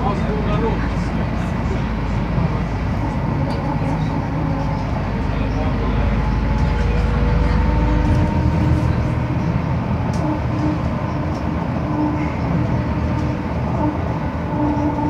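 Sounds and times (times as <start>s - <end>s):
bus engine and road drone: 0.0s - 15.0s.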